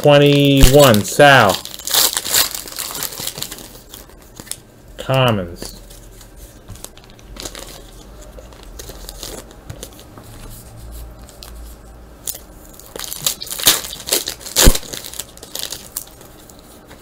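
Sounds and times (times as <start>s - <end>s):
foil wrapper tearing and crinkling: 0.2s - 4.6s, 6.8s - 9.6s, 12.3s - 16.3s.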